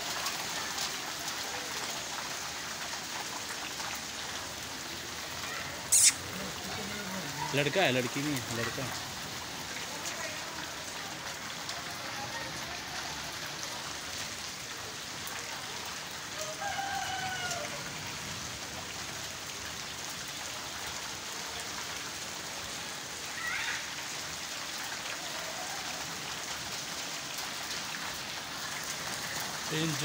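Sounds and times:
heavy rain on concrete: 0.0s - 30.0s
short falling call: 5.8s - 6.6s.

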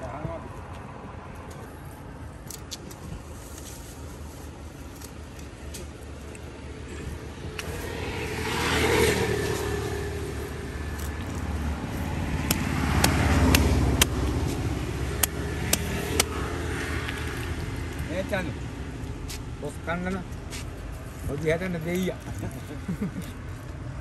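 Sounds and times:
road vehicles passing: 0.0s - 24.0s
knife chopping fish on wood block: 12.4s - 14.2s.

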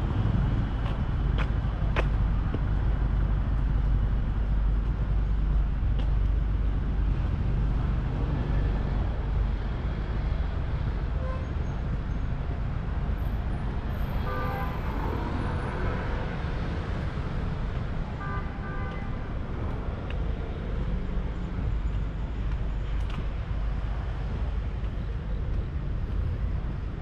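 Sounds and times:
traffic rumble: 0.0s - 27.0s.

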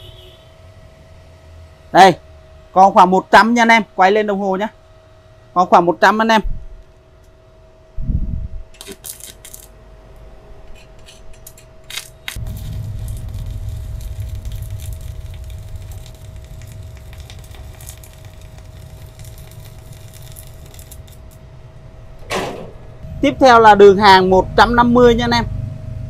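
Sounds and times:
welding arc crackling: 8.8s - 9.8s, 11.8s - 21.8s.

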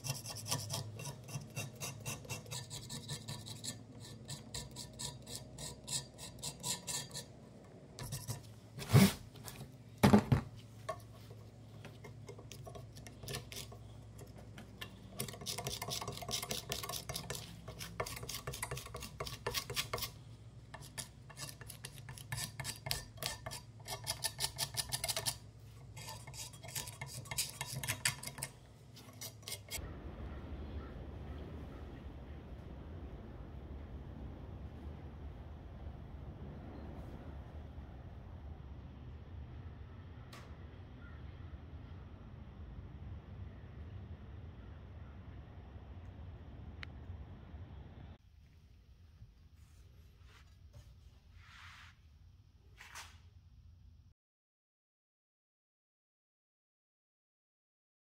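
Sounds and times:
metal scraper scraping paint: 0.0s - 7.4s, 8.0s - 9.2s, 10.9s - 29.8s.

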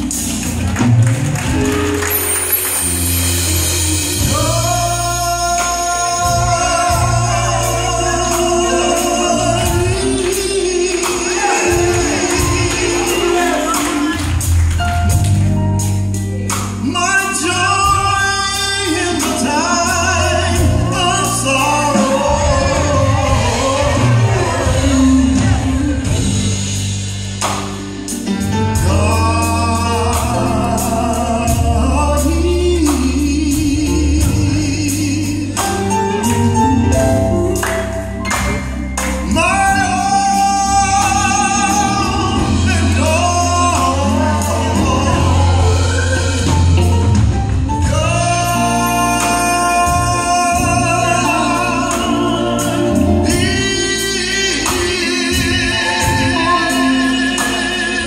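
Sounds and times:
gospel choir singing: 0.0s - 15.2s, 17.0s - 58.0s
deep bass line: 0.0s - 58.0s
lead singers on microphones: 3.6s - 14.6s, 17.1s - 26.7s.

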